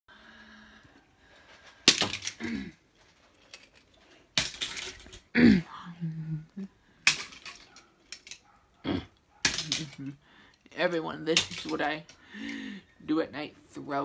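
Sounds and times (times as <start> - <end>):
toy cars clattering together: 1.5 - 5.4, 7.0 - 8.6, 9.4 - 12.9.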